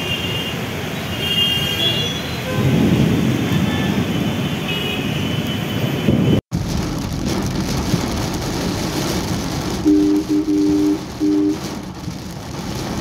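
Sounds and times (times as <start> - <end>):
rain and tyre spray hiss: 0.0 - 13.0
low rumble of vehicles: 2.5 - 13.0.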